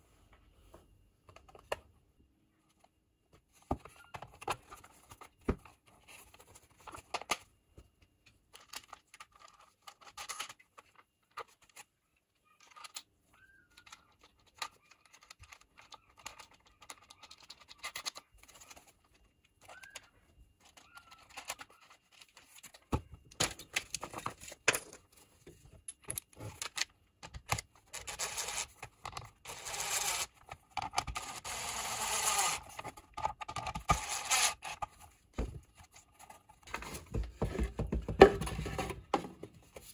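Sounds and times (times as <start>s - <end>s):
plastic parts scraping: 8.5s - 39.9s
plastic parts clicking: 12.4s - 25.0s, 25.8s - 35.0s.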